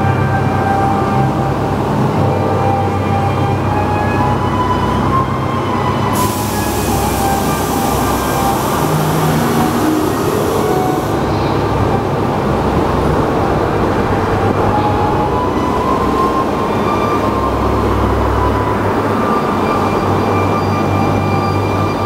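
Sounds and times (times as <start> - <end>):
ride train rumbling on track: 0.0 - 22.0
loud hiss: 6.2 - 11.2.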